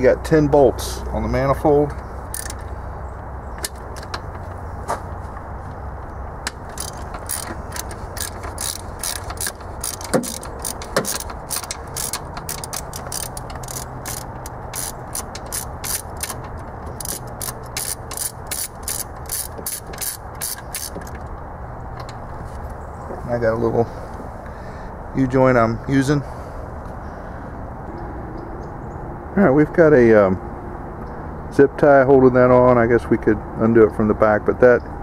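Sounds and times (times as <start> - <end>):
socket ratchet clicking: 2.3 - 2.7, 6.4 - 21.3.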